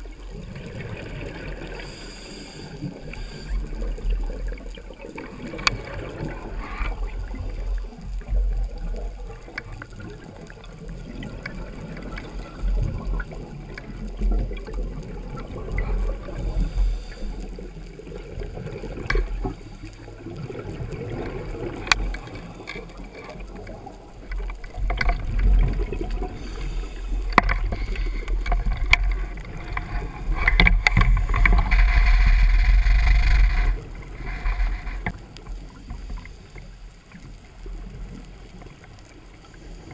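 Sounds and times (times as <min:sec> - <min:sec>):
underwater rushing water: 0:00.0 - 0:39.9
sharp clicks and knocks: 0:27.3 - 0:33.8.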